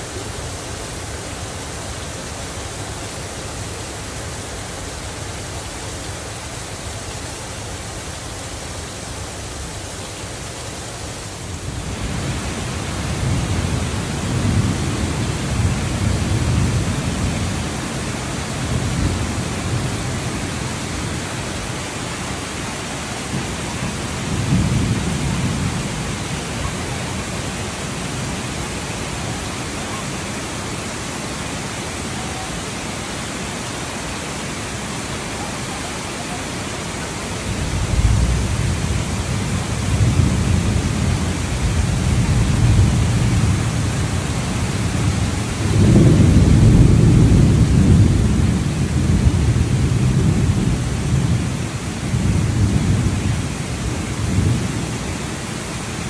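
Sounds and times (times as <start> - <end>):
heavy rain falling: 0.0 - 56.0
low rolling thunder: 23.2 - 27.4, 37.5 - 54.9.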